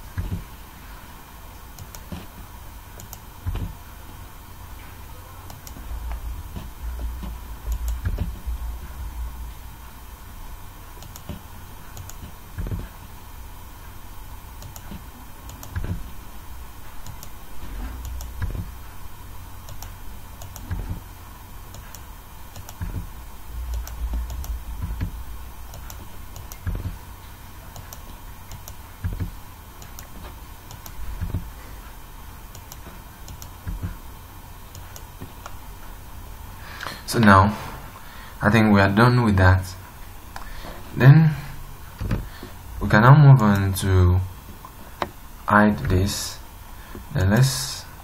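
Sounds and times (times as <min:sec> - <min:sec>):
faint electrical hum: 0:00.0 - 0:48.0
keyboard and mouse clicks: 0:01.8 - 0:02.3, 0:03.0 - 0:03.8, 0:05.5 - 0:05.9, 0:06.5 - 0:08.4, 0:11.0 - 0:12.9, 0:14.6 - 0:16.0, 0:17.0 - 0:17.4, 0:18.0 - 0:18.7, 0:19.7 - 0:21.0, 0:21.7 - 0:23.1, 0:23.7 - 0:27.0, 0:27.7 - 0:31.5, 0:32.5 - 0:34.0.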